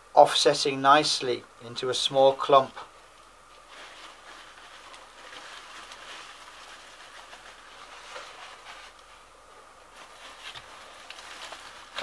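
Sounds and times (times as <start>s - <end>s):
packing padding rustling: 3.6s - 12.0s.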